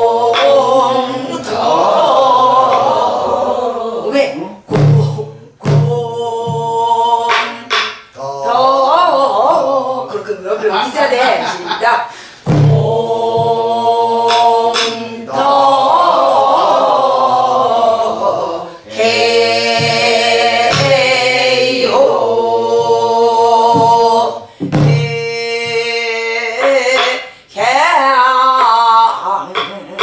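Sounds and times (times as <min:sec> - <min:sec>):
barrel drum strokes: 0:12.4 - 0:15.0, 0:19.4 - 0:22.0, 0:23.6 - 0:26.0
woman singing folk song: 0:24.5 - 0:30.0.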